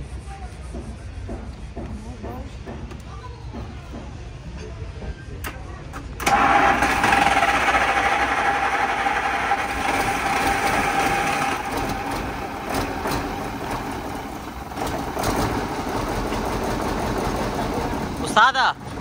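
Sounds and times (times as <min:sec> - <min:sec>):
diesel truck engine running: 0:06.2 - 0:19.0
steady whine: 0:06.2 - 0:19.0.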